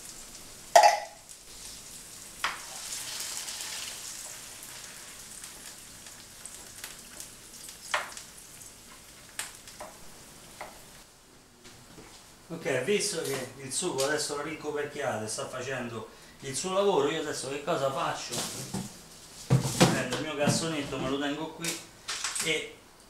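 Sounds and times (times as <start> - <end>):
vegetables sizzling in a frying pan: 0.0 - 11.1.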